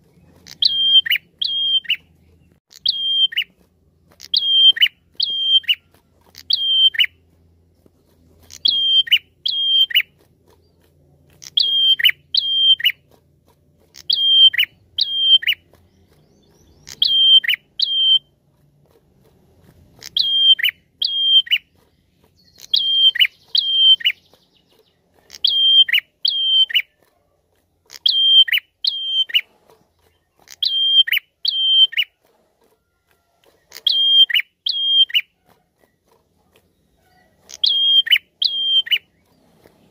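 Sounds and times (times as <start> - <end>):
bird calling with high whistles: 0.4 - 2.1, 2.7 - 3.6, 4.2 - 7.2, 8.5 - 10.2, 11.4 - 13.0, 14.0 - 18.3, 20.0 - 21.7, 22.4 - 27.0, 27.9 - 29.5, 30.2 - 32.2, 33.6 - 35.3, 36.9 - 39.5.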